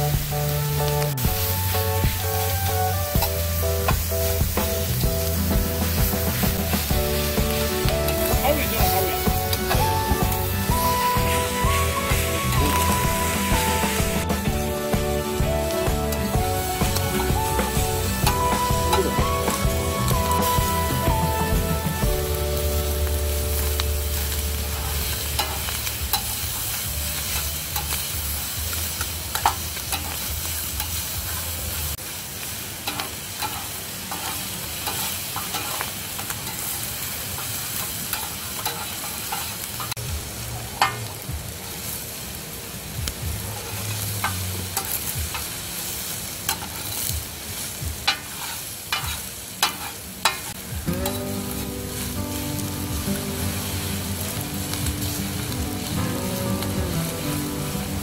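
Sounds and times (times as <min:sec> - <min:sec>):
rice sizzling on griddle: 0:00.0 - 0:58.0
metal spatulas scraping pan: 0:24.7 - 0:26.4, 0:32.9 - 0:35.8, 0:38.1 - 0:39.9, 0:46.5 - 0:47.1, 0:48.1 - 0:51.3.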